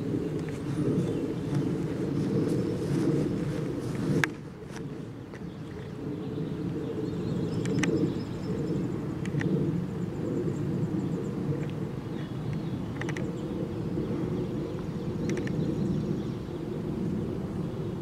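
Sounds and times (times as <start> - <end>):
light ticks: 9.2 - 9.5
faint high bird calls: 12.1 - 16.8
sharp click: 13.0 - 13.2.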